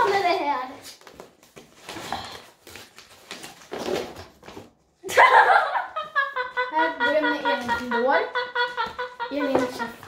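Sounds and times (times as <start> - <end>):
paper rustling and crinkling: 0.0 - 4.8
giggling: 5.0 - 10.0
person laughing: 5.1 - 10.0
person speaking: 6.6 - 10.0.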